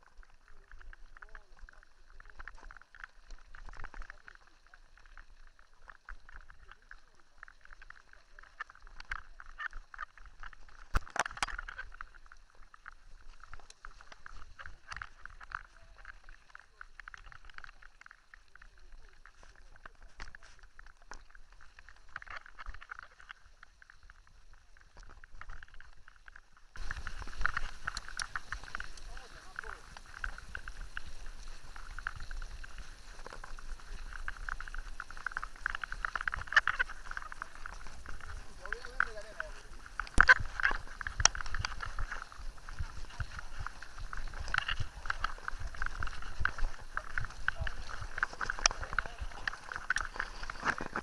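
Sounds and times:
bike rattling over gravel: 0:26.8 - 0:51.0.

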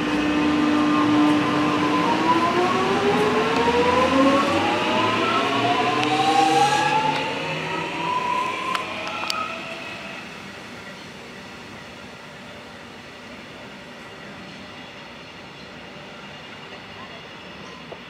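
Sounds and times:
electric train motor whine: 0:00.0 - 0:10.3.

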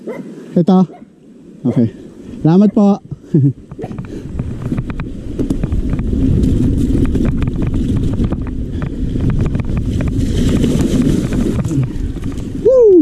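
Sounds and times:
wind buffeting microphone: 0:01.4 - 0:13.0
bike clicks and rattles: 0:03.6 - 0:12.6.

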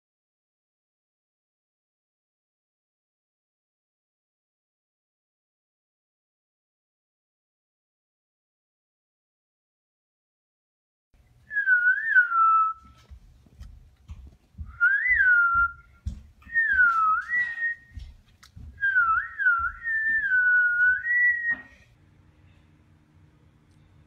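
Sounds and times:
person whistling: 0:11.5 - 0:13.0, 0:14.7 - 0:15.9, 0:16.5 - 0:18.0, 0:18.8 - 0:21.8.

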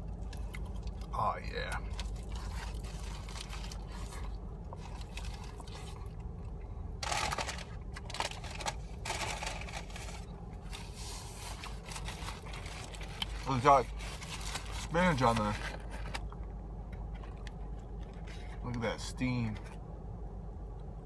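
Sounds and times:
person chewing: 0:00.0 - 0:06.7
steady low hum: 0:00.0 - 0:21.0
paper wrapper crinkling: 0:01.9 - 0:06.1, 0:07.0 - 0:16.3.

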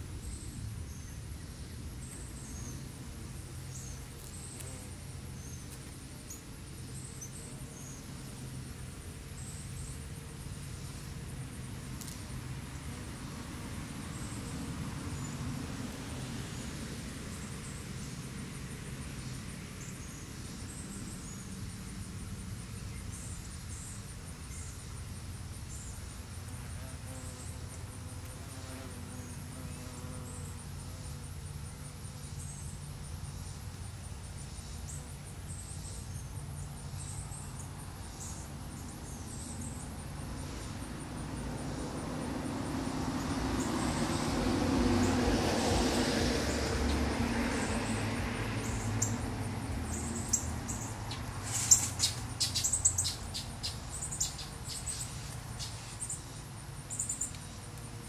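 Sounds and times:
vehicle rumble: 0:36.4 - 0:58.0
distant traffic rumble: 0:36.5 - 0:58.0.

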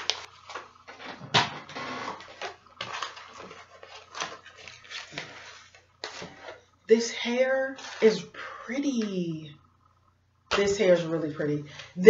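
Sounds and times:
plastic packaging crinkling: 0:00.0 - 0:06.6.

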